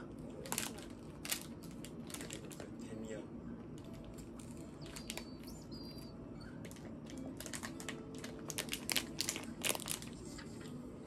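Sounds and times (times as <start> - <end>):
crunching wafer ice cream bar: 6.8 - 10.4.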